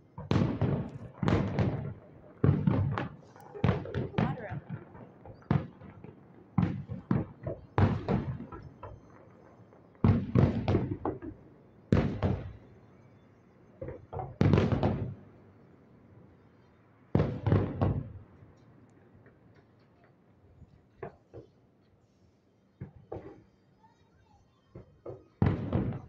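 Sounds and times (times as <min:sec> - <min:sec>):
fireworks bangs: 0:00.0 - 0:12.8, 0:13.8 - 0:15.3, 0:17.1 - 0:18.3, 0:24.7 - 0:26.0.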